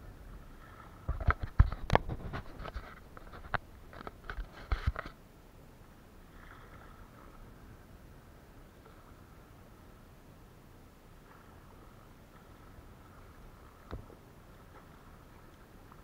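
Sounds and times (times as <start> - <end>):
knocks and taps on kayak: 13.8 - 14.1.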